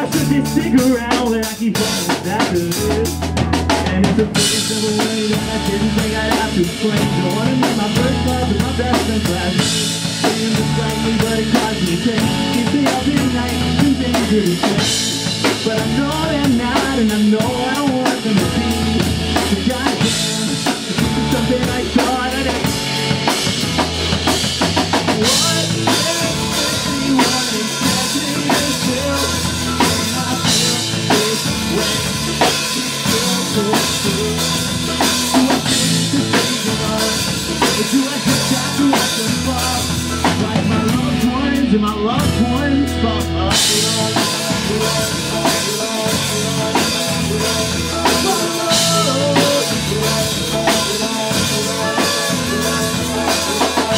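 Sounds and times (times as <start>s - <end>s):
pop-punk band playing live: 0.0s - 53.9s.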